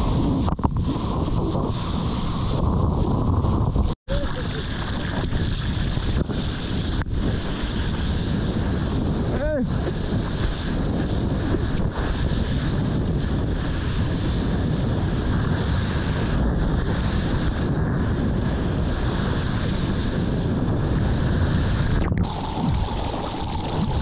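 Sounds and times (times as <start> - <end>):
breaking surf rushing: 0.0 - 24.0
wind buffeting microphone: 0.0 - 24.0.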